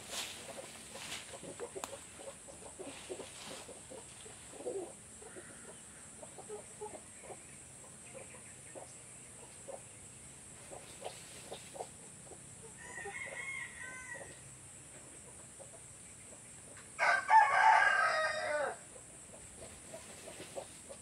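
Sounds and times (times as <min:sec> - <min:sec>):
rooster crowing: 0:12.8 - 0:14.4, 0:17.0 - 0:18.8.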